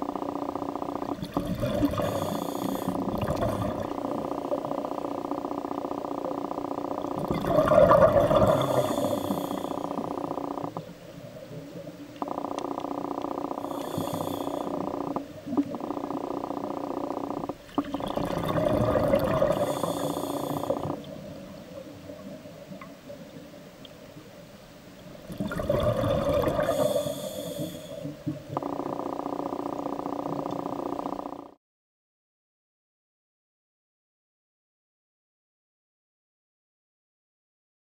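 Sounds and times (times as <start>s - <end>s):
droning hum of several tones: 0.0s - 31.6s
scuba regulator exhaust bubbles: 0.8s - 23.3s, 25.2s - 29.0s.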